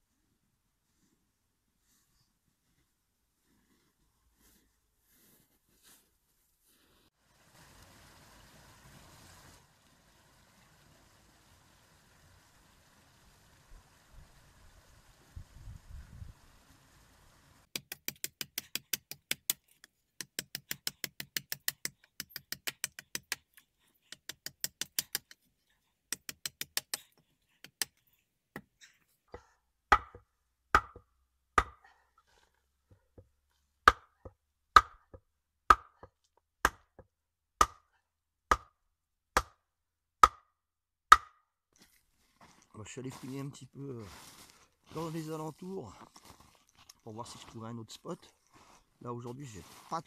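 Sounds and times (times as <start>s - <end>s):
wooden baton knocking: 29.9s - 31.8s.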